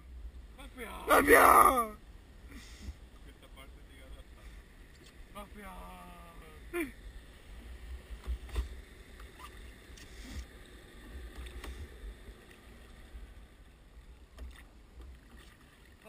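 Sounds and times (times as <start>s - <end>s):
water splashing from oar strokes: 14.4s - 16.0s.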